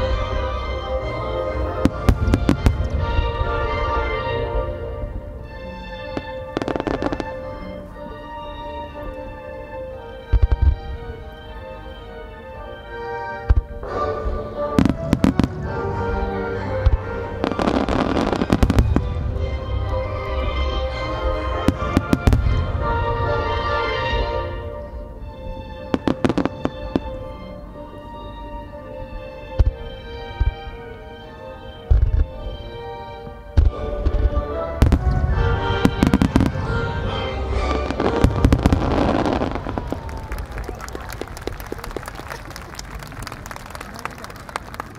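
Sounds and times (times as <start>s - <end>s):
music: 0.0s - 44.9s
fireworks crackling: 1.8s - 4.3s, 5.5s - 8.1s, 14.8s - 24.2s, 33.6s - 44.9s.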